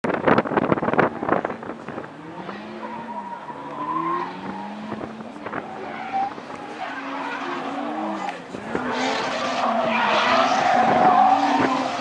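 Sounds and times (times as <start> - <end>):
wind buffeting microphone: 0.0 - 3.0
car engines revving: 0.1 - 12.0.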